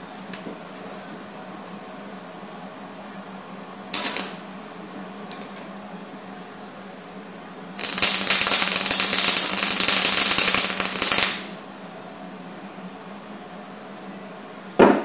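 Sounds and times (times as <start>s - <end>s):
welding arc crackling: 3.9s - 4.4s, 7.8s - 11.6s.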